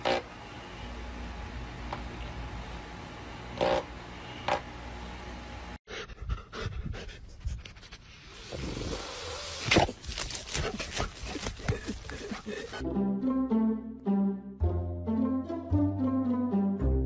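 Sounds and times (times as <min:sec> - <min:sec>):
electric fan humming: 0:00.0 - 0:05.8
scratching in dirt: 0:09.6 - 0:12.8.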